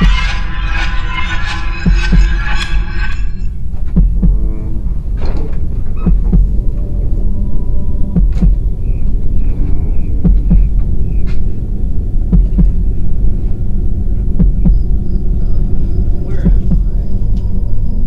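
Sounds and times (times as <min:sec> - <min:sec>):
low droning rumble: 0:00.0 - 0:18.0
heartbeat-like double thump: 0:03.9 - 0:04.5, 0:06.1 - 0:06.8, 0:08.1 - 0:08.8, 0:10.2 - 0:10.9, 0:12.3 - 0:12.9, 0:14.4 - 0:15.0, 0:16.4 - 0:17.0.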